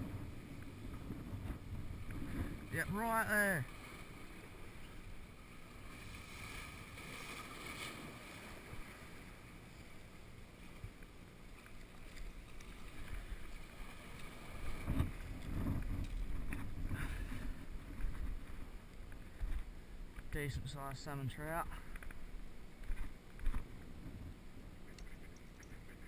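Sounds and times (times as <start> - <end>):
wind buffeting microphone: 0.0 - 3.2, 14.6 - 18.7.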